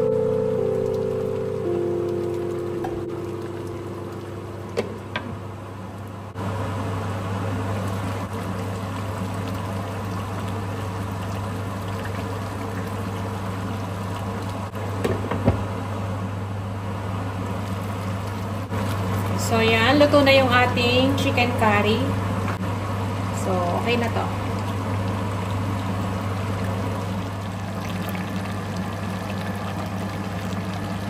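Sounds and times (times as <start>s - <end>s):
low hum: 0.0s - 7.4s
pot of curry simmering: 24.4s - 31.0s.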